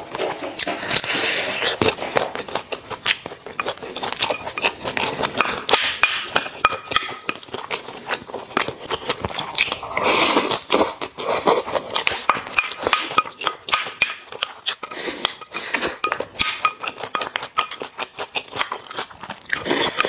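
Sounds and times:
slurping: 0.0s - 20.0s
wet chewing: 0.0s - 20.0s.

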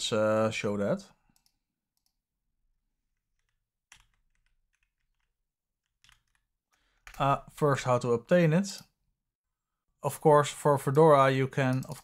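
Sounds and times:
faint keyboard clicks: 11.6s - 12.0s.

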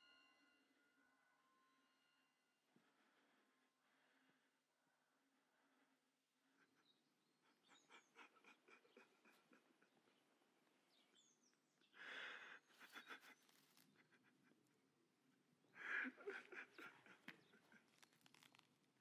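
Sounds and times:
faint bird chirps: 6.4s - 14.5s.

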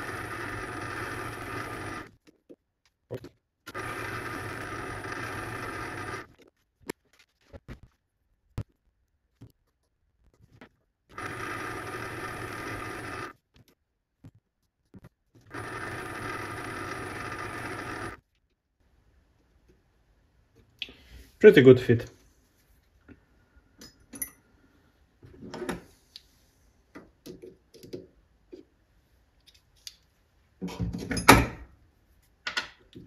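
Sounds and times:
lathe humming with high whine: 0.0s - 2.1s, 3.7s - 6.3s, 11.1s - 13.3s, 15.5s - 18.2s.

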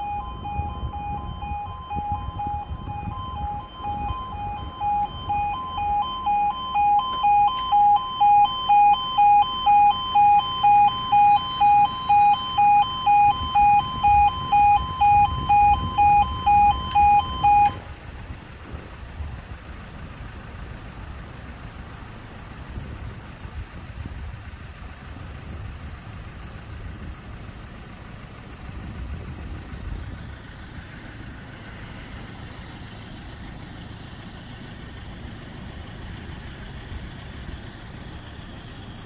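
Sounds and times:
two-tone crossing alarm: 0.0s - 17.9s
road traffic rumble: 0.0s - 39.0s.

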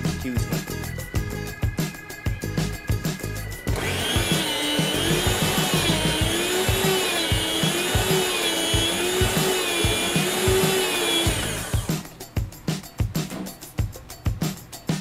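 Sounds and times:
music with drum beat: 0.0s - 15.0s
meat slicer motor hum: 3.7s - 12.0s.

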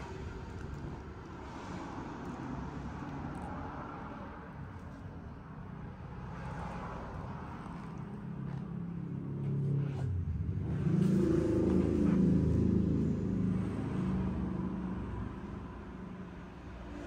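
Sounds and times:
motorcycle engine revving: 9.7s - 14.0s.

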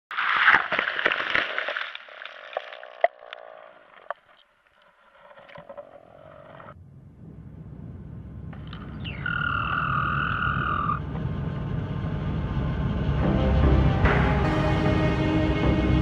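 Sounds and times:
underwater crackling and clicks: 0.1s - 6.7s
faint low rumble: 6.4s - 16.0s.

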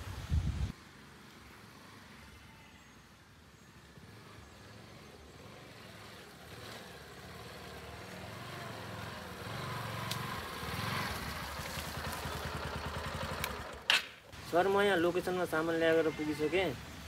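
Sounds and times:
motorcycle engine approaching: 3.7s - 16.2s.

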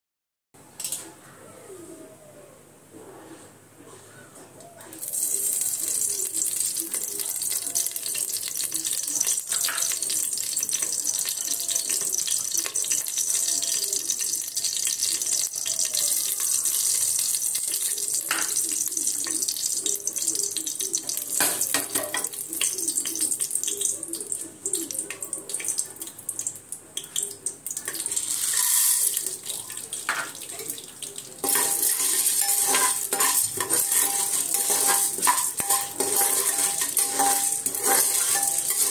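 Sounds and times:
hot oil sizzling in a pot: 5.0s - 38.9s
metal spoon scraping a pot: 27.9s - 38.9s.

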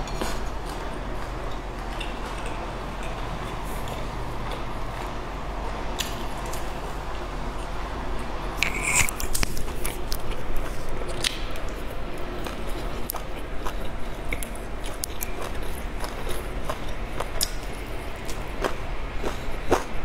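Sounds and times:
chewing soft bun: 7.6s - 20.0s.

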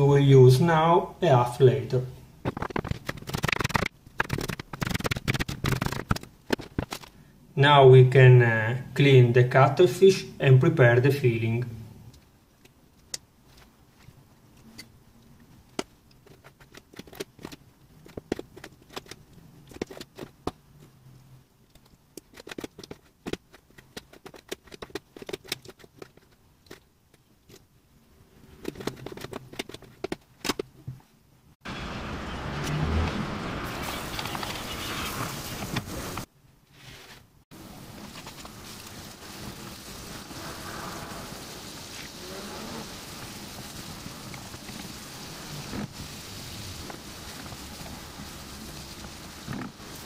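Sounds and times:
onion sizzling in hot oil: 33.6s - 36.2s, 37.5s - 50.0s.

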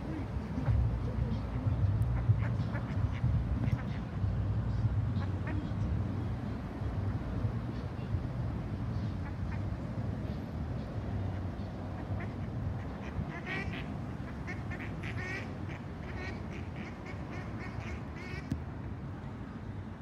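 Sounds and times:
ducks quacking: 0.0s - 4.4s, 5.1s - 6.0s, 9.0s - 9.8s, 11.2s - 18.5s
low steady rumble: 0.0s - 15.5s.

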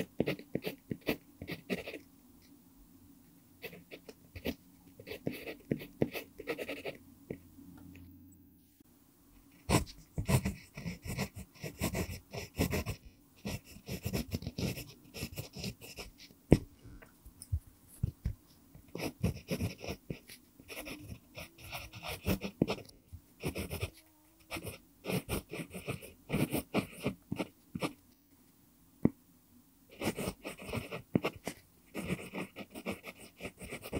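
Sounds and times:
pencil scratching on paper: 0.0s - 2.0s, 3.6s - 7.0s, 9.5s - 16.3s, 18.8s - 28.0s, 29.9s - 33.9s.

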